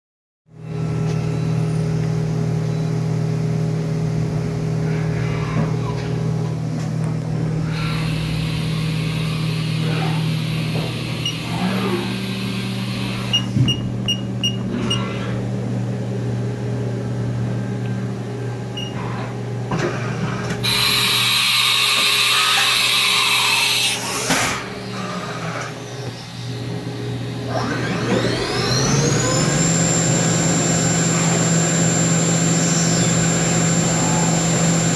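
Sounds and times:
machine humming: 0.6 - 34.9
spindle whine rising in pitch: 25.4 - 34.9.

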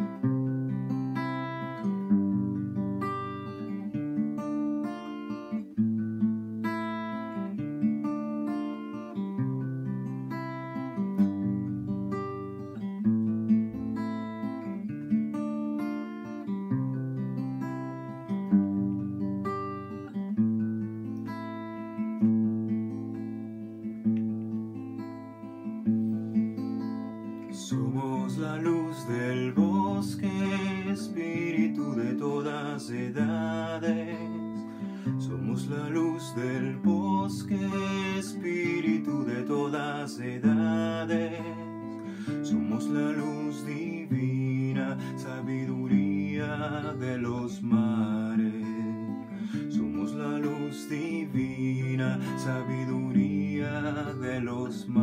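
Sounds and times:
acoustic guitar strumming: 0.0 - 55.0
man singing: 27.5 - 55.0.

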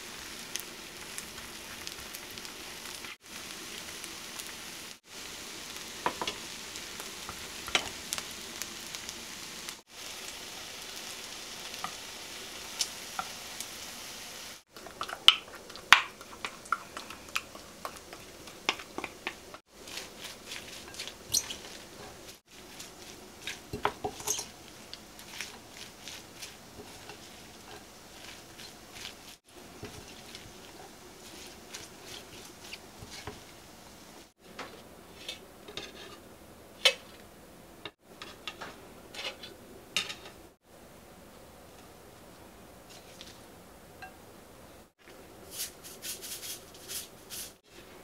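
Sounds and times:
wet squishing of tossed vegetables: 14.7 - 34.3
chopsticks tapping: 14.8 - 33.4.

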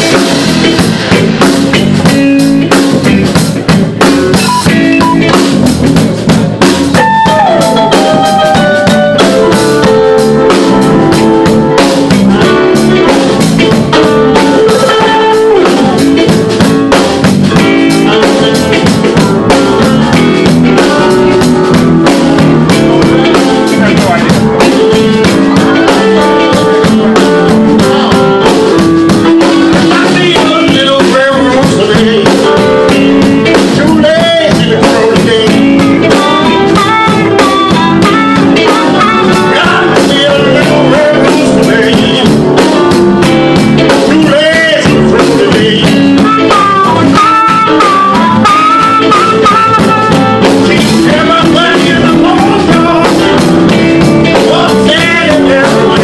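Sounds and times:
live blues band playing: 0.0 - 56.0.

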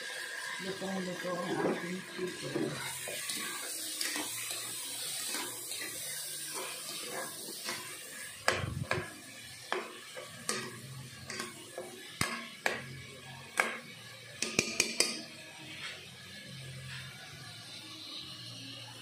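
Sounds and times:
spoon knocking and scraping pot: 5.1 - 12.9, 13.6 - 15.3.

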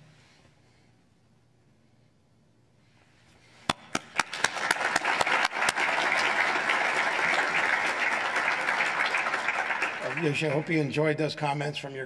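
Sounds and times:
audience applauding: 4.0 - 11.2.

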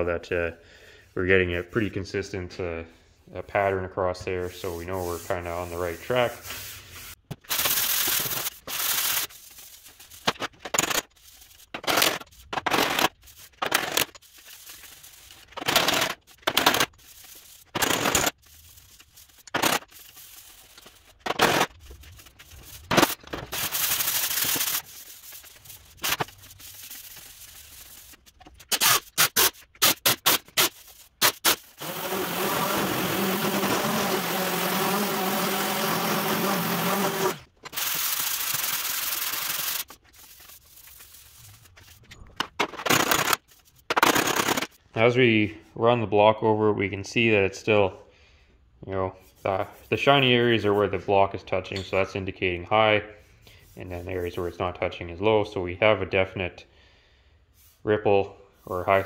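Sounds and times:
sanding block rasping on metal: 4.6 - 7.2, 30.5 - 39.9.

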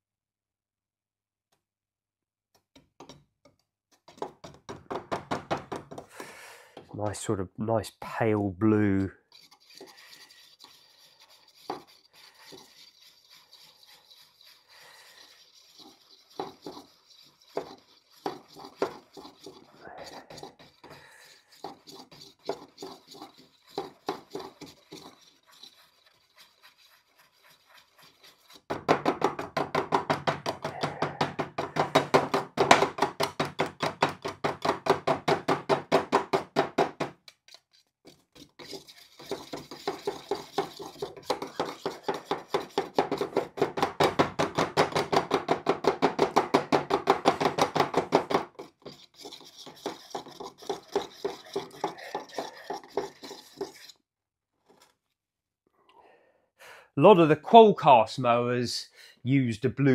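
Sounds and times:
paint stirrer scraping in tin: 8.9 - 28.8, 37.3 - 43.8, 48.5 - 54.0.

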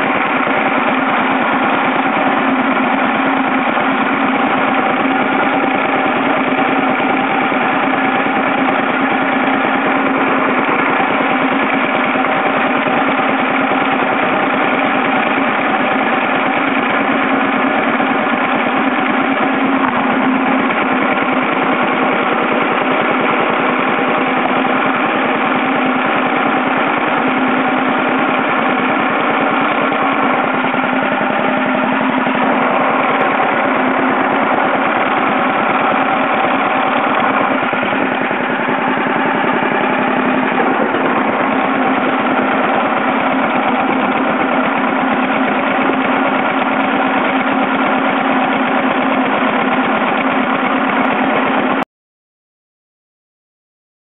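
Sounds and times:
small engine chugging: 0.0 - 51.8.

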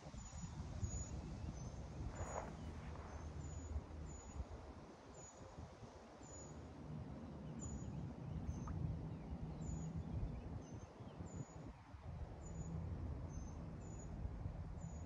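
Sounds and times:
wind buffeting microphone: 0.0 - 5.9.

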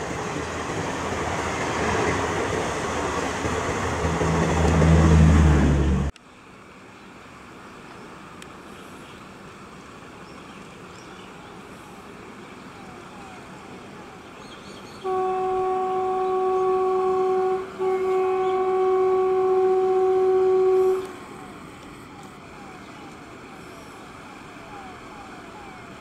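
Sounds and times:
train rumbling: 0.0 - 6.1, 11.6 - 26.0
locomotive horn blast: 15.0 - 21.2.

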